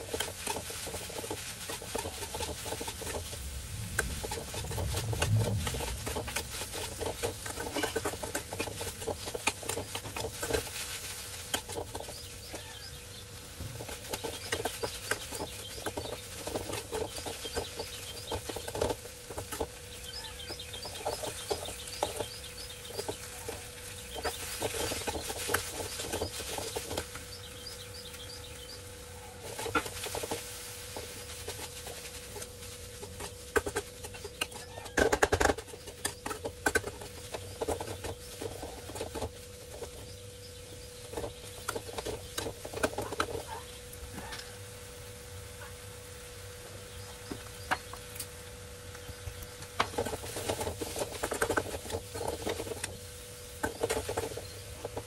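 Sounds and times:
metal spatula scraping a pan: 0.0s - 12.9s
small birds chirping: 0.0s - 44.7s, 45.6s - 55.0s.

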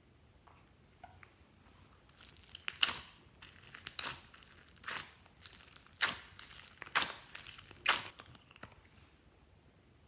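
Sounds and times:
rubber squeeze toys squelching: 2.1s - 8.8s.

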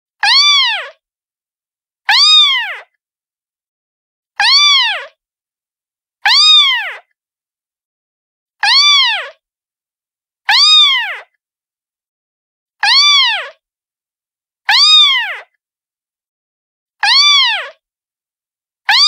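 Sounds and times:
cat meowing: 0.2s - 1.0s, 2.1s - 2.9s, 4.4s - 5.2s, 6.3s - 7.1s, 8.6s - 9.4s, 10.5s - 11.3s, 12.8s - 13.6s, 14.7s - 15.5s, 17.0s - 17.8s.

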